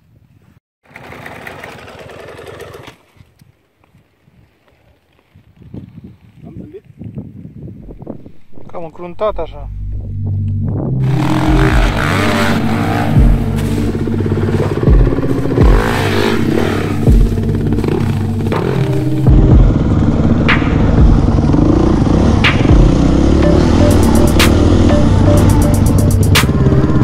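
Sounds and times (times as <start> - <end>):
background music with low beat: 9.3 - 27.0
dirt bike engines revving: 11.0 - 26.9.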